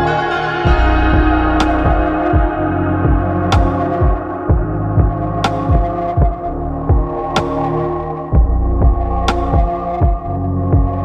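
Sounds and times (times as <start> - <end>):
sharp high hit: 0.0 - 7.5
electronic music with kick drum: 0.0 - 11.0.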